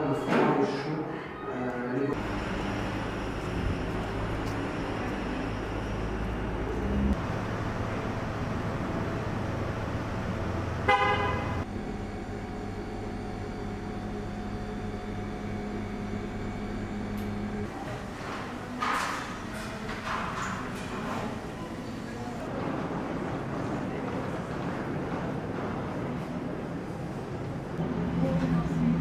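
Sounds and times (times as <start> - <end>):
street traffic: 2.2 - 18.8, 19.4 - 29.0
car horn honk: 10.8 - 11.7.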